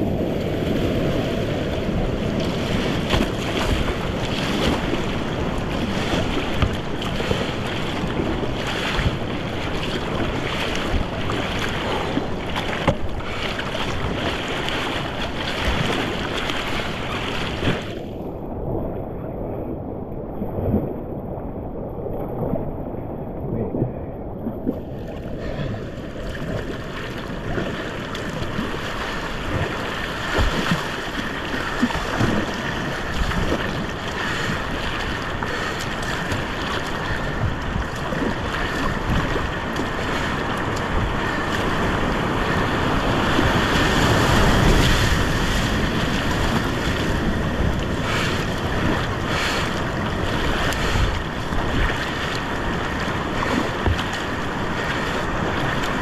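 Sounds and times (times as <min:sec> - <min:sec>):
whitewater rapids rushing: 0:25.4 - 0:56.0.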